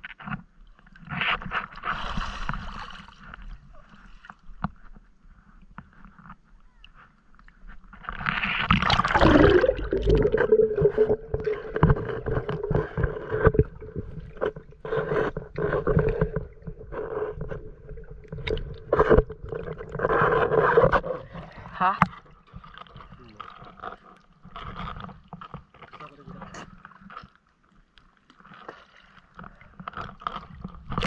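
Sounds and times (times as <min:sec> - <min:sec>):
underwater clicks and knocks: 0:07.4 - 0:27.4, 0:28.3 - 0:31.0
rush of bubbles: 0:08.6 - 0:21.0.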